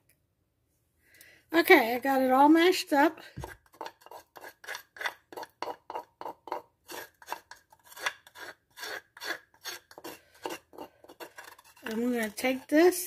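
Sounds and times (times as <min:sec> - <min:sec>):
metal spoon scraping wooden mortar: 0:03.2 - 0:13.0.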